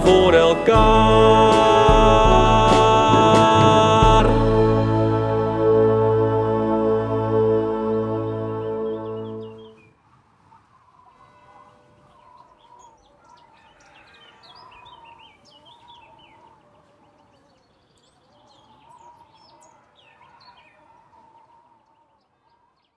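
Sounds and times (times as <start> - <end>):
small birds chirping: 8.8 - 22.9.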